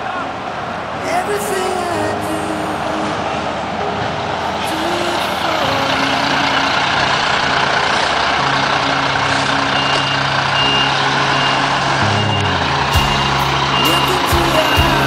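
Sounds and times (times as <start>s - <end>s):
diesel truck engine running: 3.2s - 15.0s
reversing alarm beeping: 6.4s - 15.0s.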